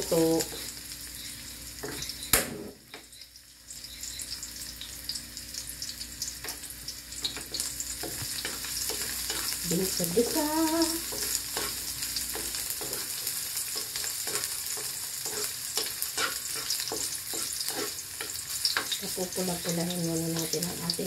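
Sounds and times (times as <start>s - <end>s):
garlic and onion sizzling in oil: 0.0s - 21.0s
wooden spatula scraping metal pan: 11.1s - 19.0s.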